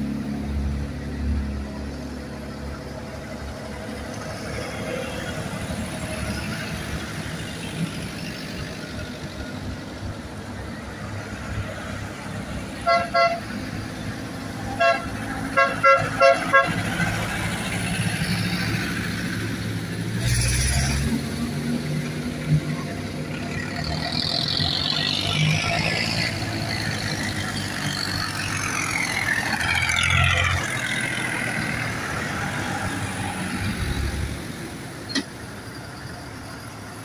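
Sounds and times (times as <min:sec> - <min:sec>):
tractor engine running: 0:00.0 - 0:37.0
horn tooting: 0:12.8 - 0:13.6, 0:14.7 - 0:16.9.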